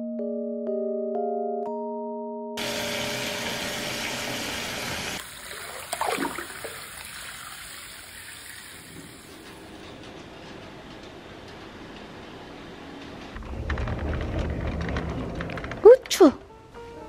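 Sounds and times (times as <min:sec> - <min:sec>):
tap water pouring into tub: 0:02.6 - 0:09.3
water splashing: 0:05.0 - 0:09.3.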